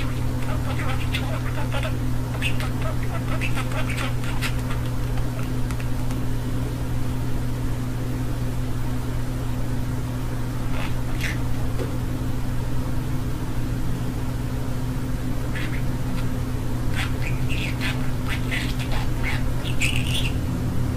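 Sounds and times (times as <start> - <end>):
budgerigar chirps: 0.0 - 6.0, 10.7 - 11.4, 15.5 - 16.3, 16.9 - 20.4
low mechanical hum: 0.0 - 20.9.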